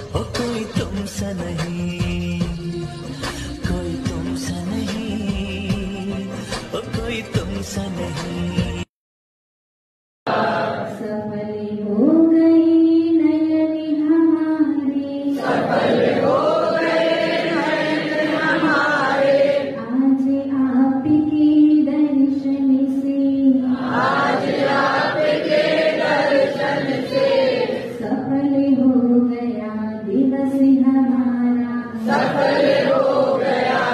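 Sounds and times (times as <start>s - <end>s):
woman singing a chant: 10.5s - 33.9s.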